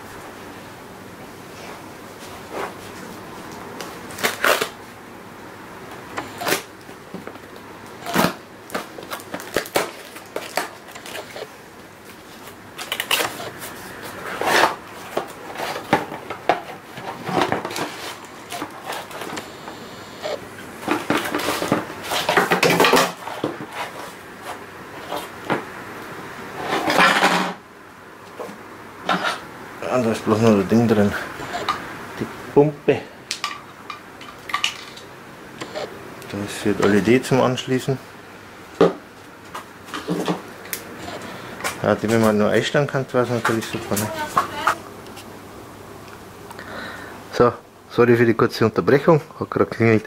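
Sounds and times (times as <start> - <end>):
packaging rustling and scraping: 1.6 - 4.8, 6.2 - 6.7, 8.0 - 25.4.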